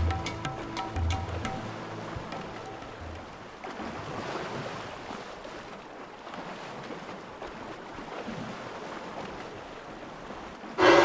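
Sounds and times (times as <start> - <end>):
elephants splashing through water: 2.5 - 11.0.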